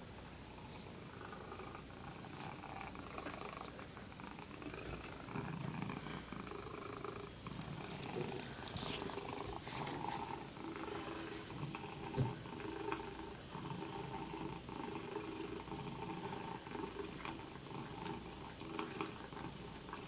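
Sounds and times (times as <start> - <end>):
cat purring: 0.5 - 20.0
tap water trickling into sink: 7.4 - 9.6.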